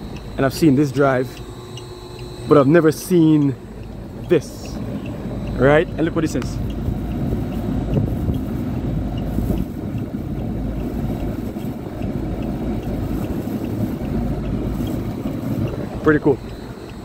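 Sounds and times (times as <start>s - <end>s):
rooftop hvac unit rumbling: 0.0s - 17.0s
wind on microphone: 4.0s - 16.8s.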